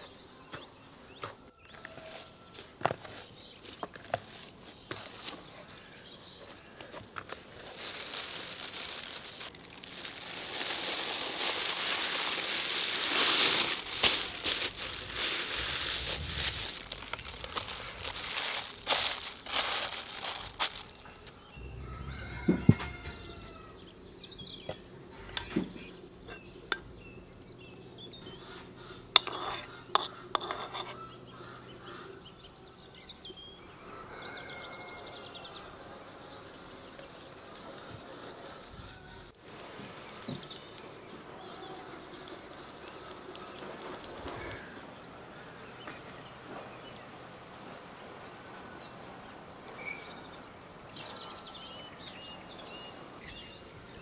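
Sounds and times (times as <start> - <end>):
birds chirping: 0.0 - 54.0
flour rustling by hand: 7.3 - 21.6.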